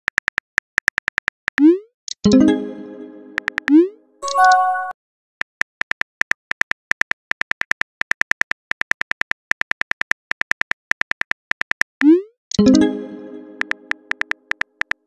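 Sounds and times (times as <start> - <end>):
text message chime: 2.3 - 4.9, 12.6 - 14.1
quick keyboard clicks: 3.3 - 3.7.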